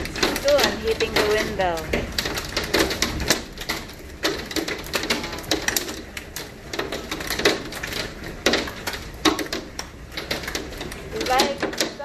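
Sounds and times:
hailstones striking window: 0:00.0 - 0:12.0.

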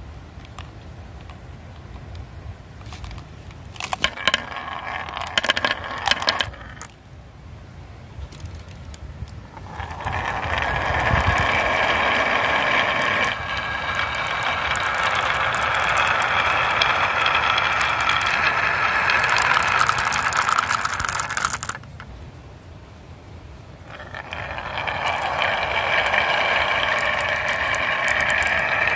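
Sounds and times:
marbles clicking together: 0:03.8 - 0:07.0, 0:08.3 - 0:22.1, 0:23.8 - 0:28.9
marbles rolling down wooden track: 0:03.8 - 0:07.0, 0:08.3 - 0:22.1, 0:23.8 - 0:28.9.

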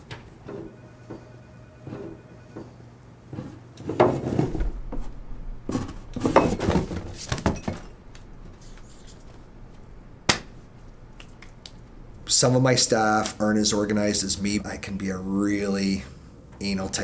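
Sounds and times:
door opening: 0:04.3 - 0:12.1.

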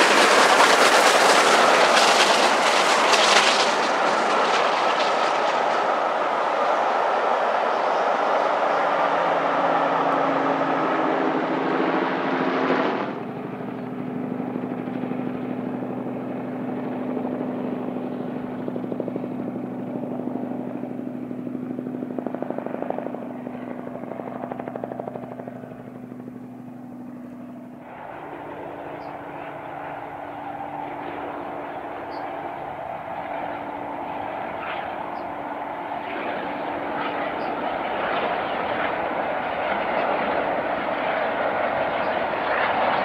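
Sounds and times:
steam train passing: 0:00.0 - 0:07.5.

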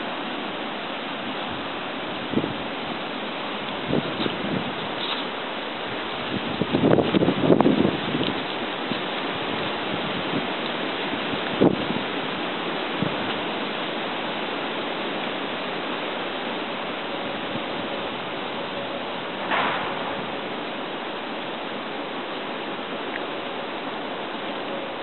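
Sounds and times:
wind on microphone: 0:01.4 - 0:13.6, 0:17.0 - 0:20.8
short knock: 0:19.5 - 0:20.2.

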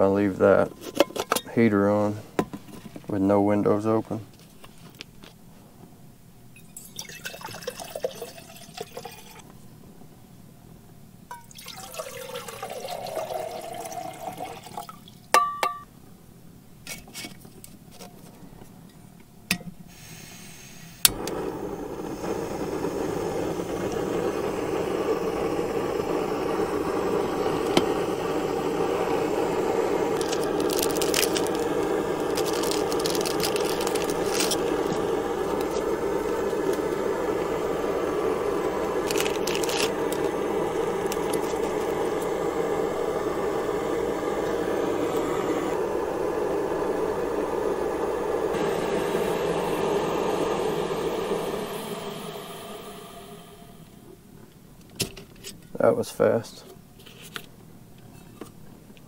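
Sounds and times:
gas burner hissing: 0:00.0 - 0:04.3, 0:11.6 - 0:14.8, 0:19.7 - 0:54.2
water pouring into a cup: 0:06.8 - 0:09.4, 0:11.3 - 0:15.2, 0:29.7 - 0:42.1.

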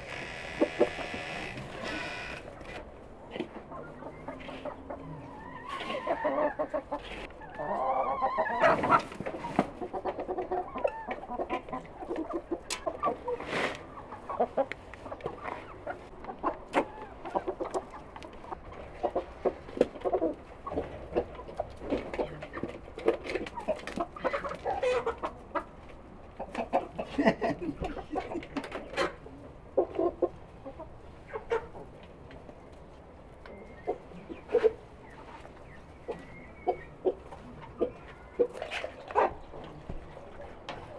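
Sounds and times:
hens and roosters clucking: 0:00.0 - 0:40.9.

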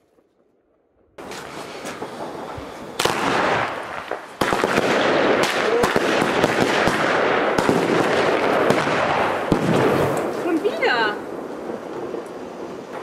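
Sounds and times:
fireworks crackling: 0:00.0 - 0:13.0
fireworks launch hissing: 0:01.2 - 0:05.9, 0:08.6 - 0:13.0
sharp firework pops: 0:01.2 - 0:10.8.

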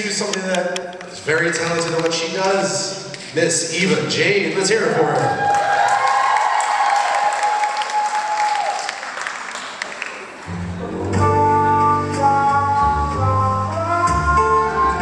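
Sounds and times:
audience applauding and cheering: 0:05.0 - 0:11.0
recorded instrumental music: 0:10.5 - 0:15.0.

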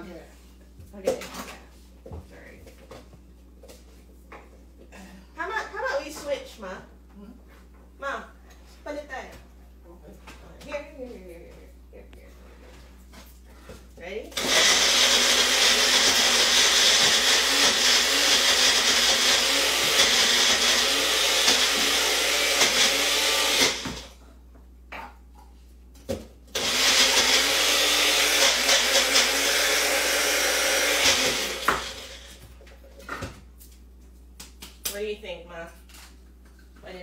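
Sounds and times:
blender running: 0:14.4 - 0:24.2, 0:26.5 - 0:32.4.

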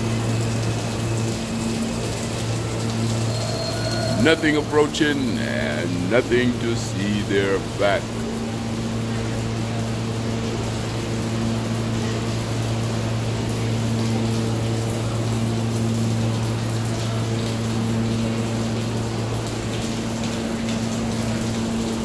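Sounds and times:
water pouring and splashing: 0:00.0 - 0:22.0.

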